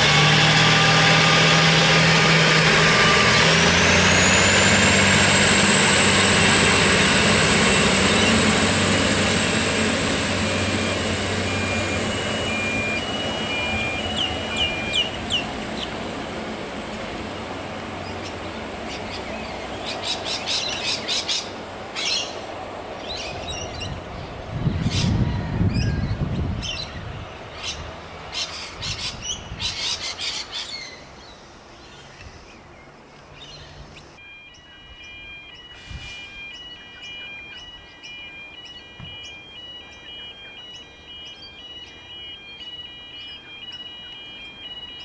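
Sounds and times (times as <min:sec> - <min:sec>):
diesel railcar engine hum: 0:00.0 - 0:45.0
birds chirping: 0:07.9 - 0:08.6, 0:10.6 - 0:45.0.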